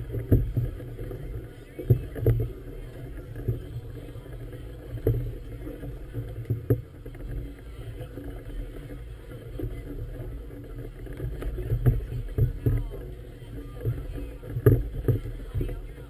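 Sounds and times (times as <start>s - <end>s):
choppy water against boat: 0.0s - 16.0s.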